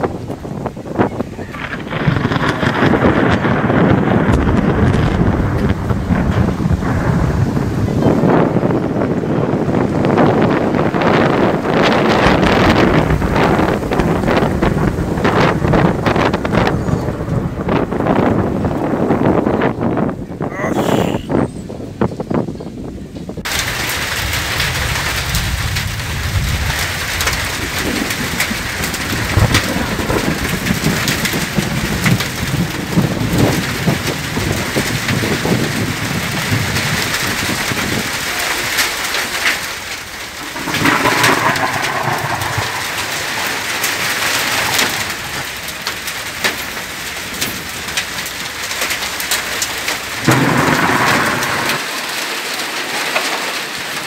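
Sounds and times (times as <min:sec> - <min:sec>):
hail and heavy rain pelting: 0:00.0 - 0:20.1, 0:23.4 - 0:54.0
deep rumble: 0:00.9 - 0:21.3, 0:39.7 - 0:52.4.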